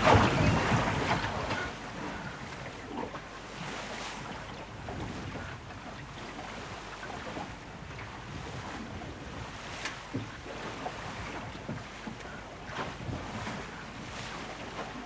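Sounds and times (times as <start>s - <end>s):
sea noise: 0.0s - 4.4s
wind: 0.0s - 15.0s.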